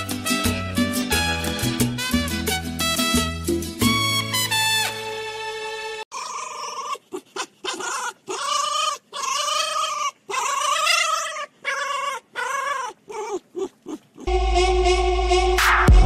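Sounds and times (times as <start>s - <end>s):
fox whining and squealing: 6.1s - 14.3s.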